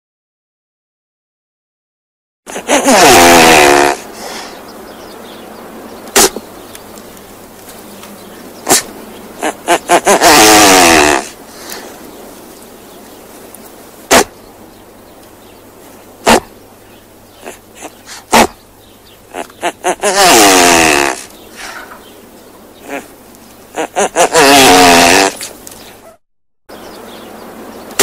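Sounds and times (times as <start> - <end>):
bird sharp pops: 6.0 - 6.9, 8.6 - 8.9, 14.1 - 14.4.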